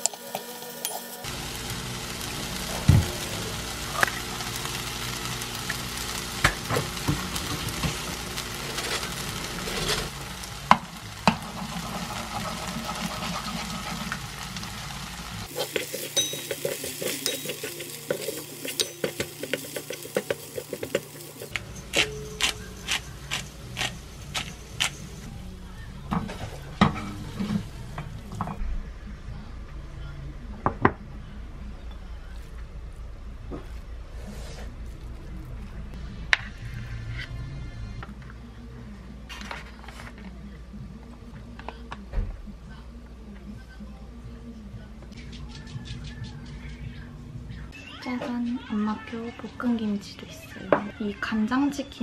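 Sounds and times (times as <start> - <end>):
food sizzling in a frying pan: 0.0 - 25.3.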